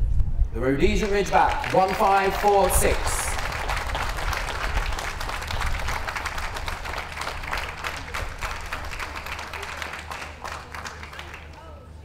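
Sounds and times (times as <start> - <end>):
audience applauding: 0.9 - 11.8.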